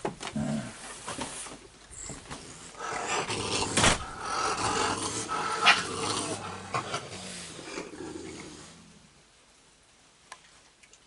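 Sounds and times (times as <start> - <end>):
raccoons growling and snarling: 0.2 - 0.8, 1.9 - 9.2.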